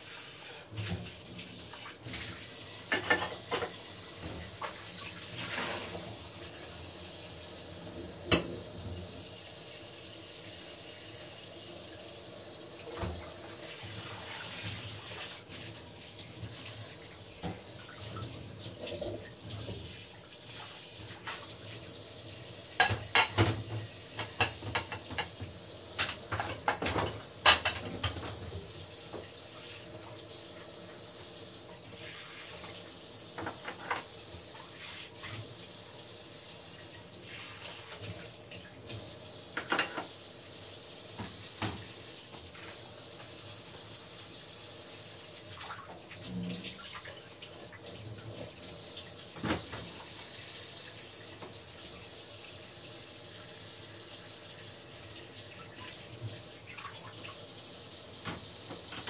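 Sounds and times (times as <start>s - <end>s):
tap water running: 0.0s - 59.0s
dishes clinking and clattering: 2.8s - 4.8s, 22.8s - 28.5s, 33.4s - 34.2s, 39.6s - 40.2s.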